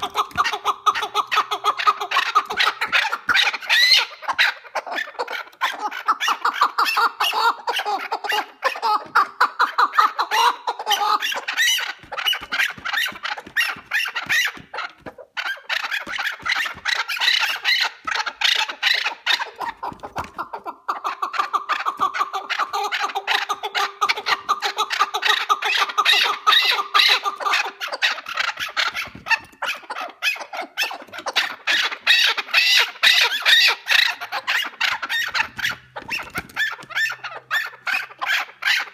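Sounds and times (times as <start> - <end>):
partridge clucking: 0.0 - 38.9.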